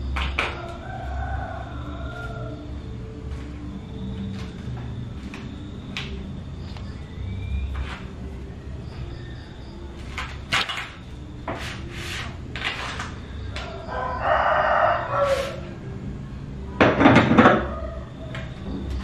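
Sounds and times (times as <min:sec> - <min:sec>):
rooster crowing: 0:00.3 - 0:03.5, 0:13.3 - 0:16.0, 0:17.3 - 0:18.6
food and boxes knocking on a counter: 0:16.8 - 0:17.7.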